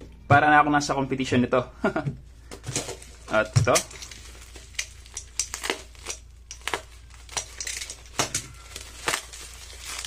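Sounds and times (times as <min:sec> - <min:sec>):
bubble wrap crinkling and crackling: 0:02.4 - 0:10.0.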